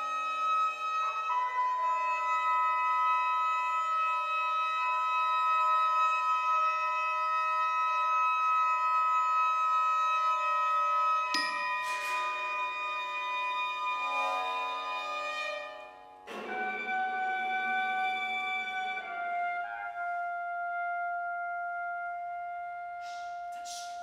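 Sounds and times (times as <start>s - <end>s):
percussion stroke ringing: 11.4s - 13.0s.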